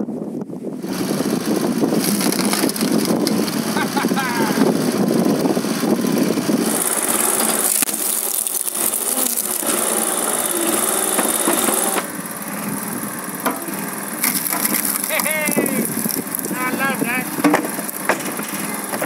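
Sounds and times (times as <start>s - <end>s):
small petrol engine running: 0.7s - 19.0s
wood cracking and splintering: 2.0s - 3.8s, 6.6s - 12.1s, 14.2s - 16.6s.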